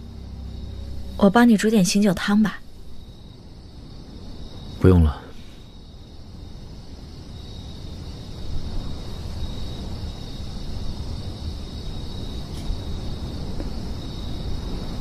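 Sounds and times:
low rumble: 0:00.0 - 0:03.6
crickets chirring: 0:00.0 - 0:15.0.

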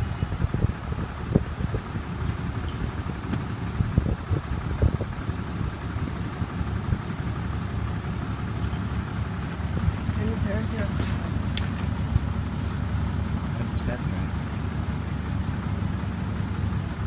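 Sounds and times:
wind buffeting microphone: 0:00.0 - 0:07.5, 0:09.3 - 0:12.5
truck engine rumbling: 0:00.0 - 0:17.0.

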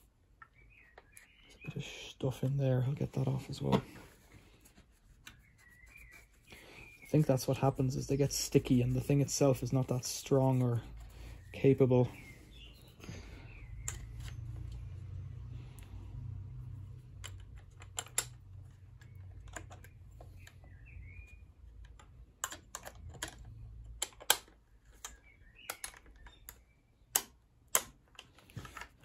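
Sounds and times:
plastic parts clicking and tapping: 0:17.0 - 0:20.7, 0:21.6 - 0:29.0.

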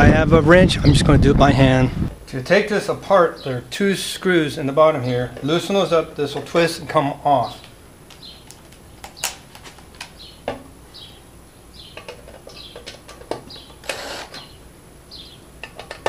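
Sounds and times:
clicks and knocks of handling: 0:12.0 - 0:14.0, 0:15.6 - 0:16.0
impact driver running: 0:13.8 - 0:14.4.

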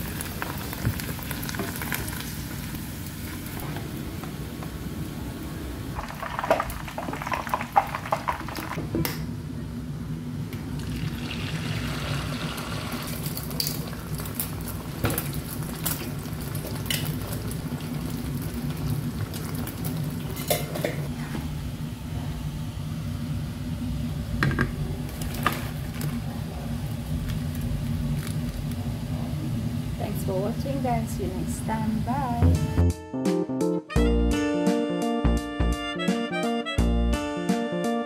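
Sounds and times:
oil sizzling in a pan: 0:00.0 - 0:08.9, 0:10.7 - 0:21.2.

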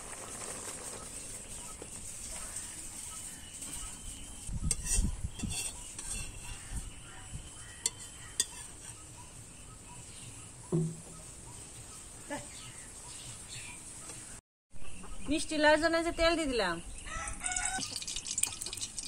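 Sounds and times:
metal spatula scraping frying pan: 0:02.6 - 0:07.0, 0:07.6 - 0:09.2
dull knock: 0:10.7 - 0:11.1.

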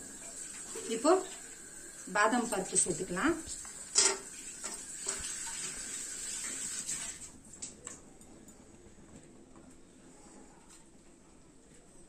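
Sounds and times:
nuts sizzling in hot fat: 0:00.0 - 0:07.0.

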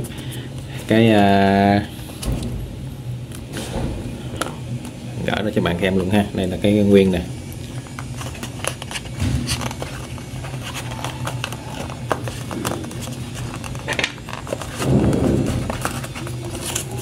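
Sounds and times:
steady low hum: 0:00.0 - 0:17.0
cardboard rustle: 0:07.8 - 0:17.0.

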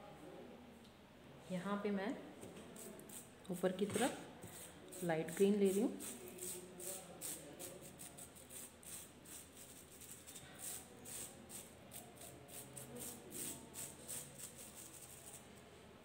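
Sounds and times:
paintbrush bristles scratching plastic: 0:02.8 - 0:15.6.

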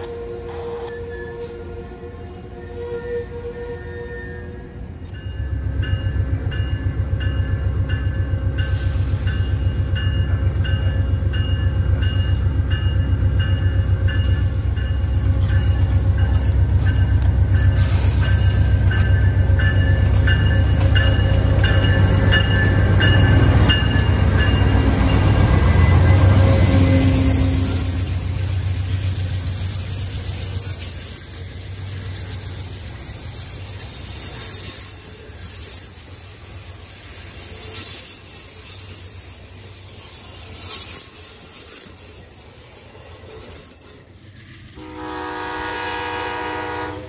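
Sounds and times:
diesel locomotive engine rumbling: 0:00.0 - 0:47.0
locomotive bell ringing: 0:04.3 - 0:30.6.

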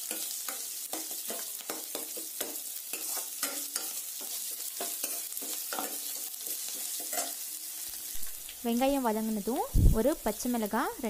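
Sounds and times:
steel spoon scraping a pan: 0:00.0 - 0:08.5
shallots sizzling in oil: 0:00.0 - 0:11.0.

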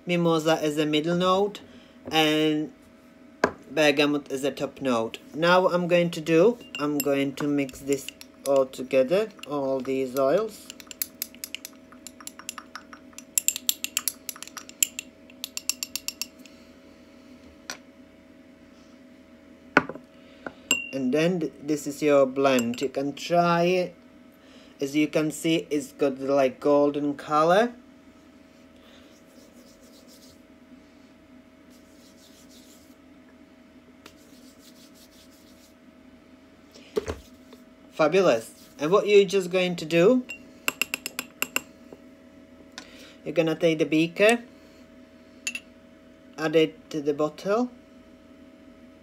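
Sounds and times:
faint steady hum: 0:00.0 - 0:49.0
glass rod clinking on beaker: 0:06.6 - 0:08.7, 0:09.3 - 0:09.6, 0:10.2 - 0:16.5, 0:20.7 - 0:21.0, 0:22.6 - 0:22.9, 0:40.3 - 0:41.7, 0:45.5 - 0:45.7
oily palms rubbing together: 0:29.0 - 0:30.5, 0:31.7 - 0:33.0, 0:34.0 - 0:35.8, 0:38.5 - 0:38.8.

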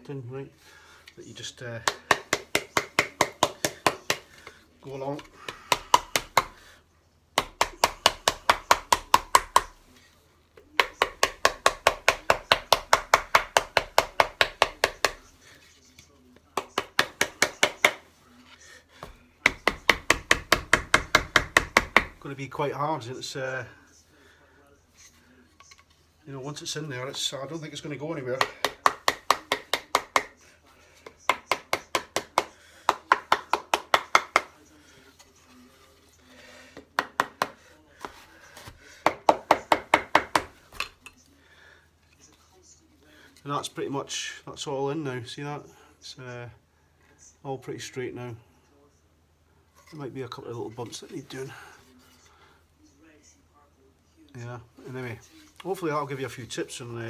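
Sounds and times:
rubber mallet tapping wood: 0:01.8 - 0:04.5, 0:05.2 - 0:06.6, 0:07.4 - 0:09.8, 0:10.8 - 0:15.2, 0:19.0 - 0:22.2, 0:28.4 - 0:30.3, 0:31.3 - 0:34.6, 0:36.8 - 0:41.0.

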